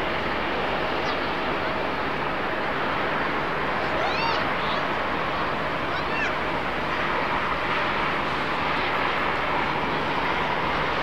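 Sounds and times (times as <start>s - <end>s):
jet engines taxiing: 0.0s - 11.0s.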